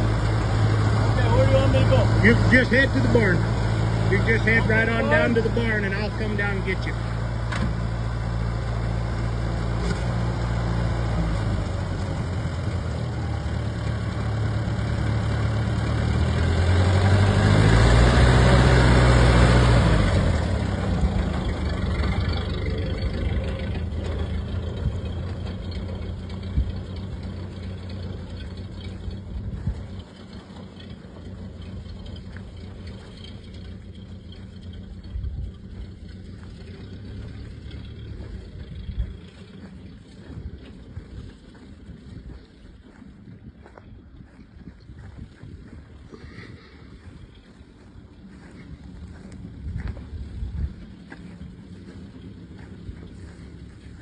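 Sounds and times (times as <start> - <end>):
car engine pulling away: 0.0 - 54.0.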